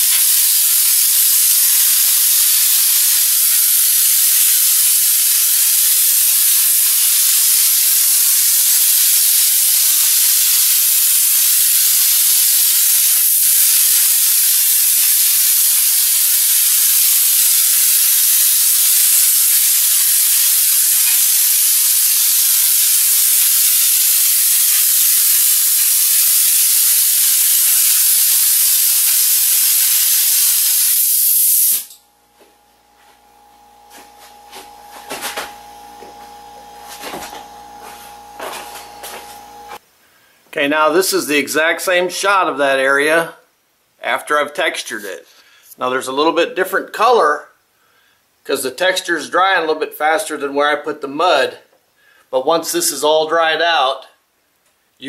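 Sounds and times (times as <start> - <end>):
compressed air hissing from spray gun: 0.0 - 31.9, 32.8 - 39.8.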